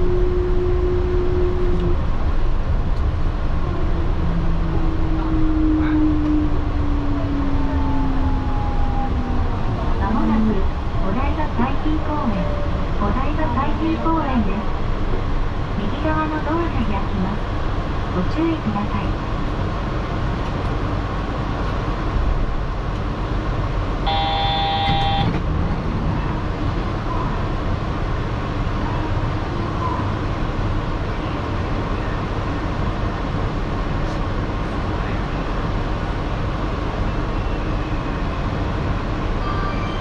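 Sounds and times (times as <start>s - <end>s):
train car hum: 0.0s - 40.0s
short electronic tone: 24.1s - 25.4s.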